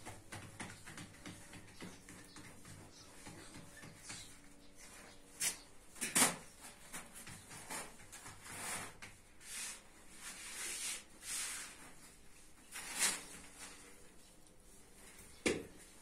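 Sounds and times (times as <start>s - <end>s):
flatbread scraping and rustling: 6.2s - 14.1s.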